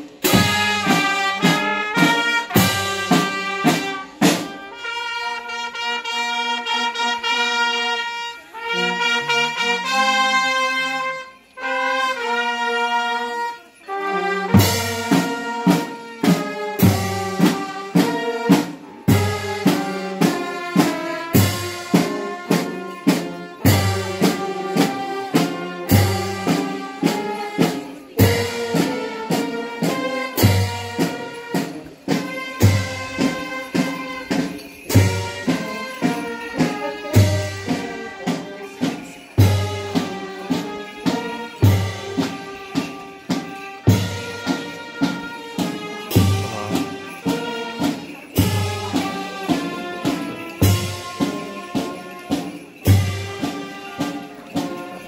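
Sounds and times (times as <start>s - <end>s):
brass band funeral march: 0.0s - 55.0s
cymbals crashing: 28.1s - 55.0s.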